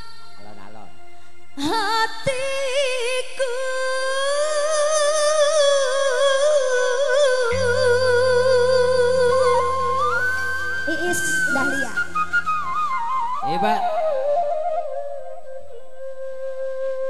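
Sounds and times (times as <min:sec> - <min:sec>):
musical accompaniment: 0:04.7 - 0:17.0
low bass tone: 0:07.5 - 0:12.7.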